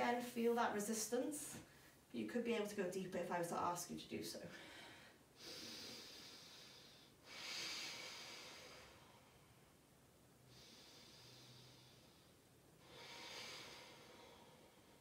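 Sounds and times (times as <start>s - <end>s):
woman breathing slowly: 4.5s - 15.0s.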